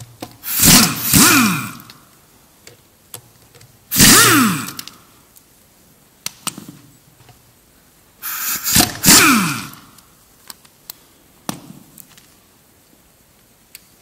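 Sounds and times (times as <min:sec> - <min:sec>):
air impact wrench bursts: 0:00.4 - 0:02.0, 0:03.9 - 0:05.1, 0:08.2 - 0:10.0.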